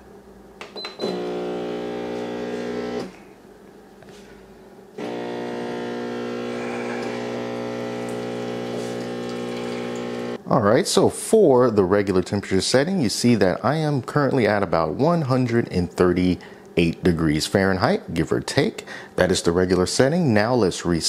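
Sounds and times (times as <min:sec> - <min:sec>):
espresso machine pump humming: 0:01.0 - 0:03.2, 0:05.0 - 0:10.4.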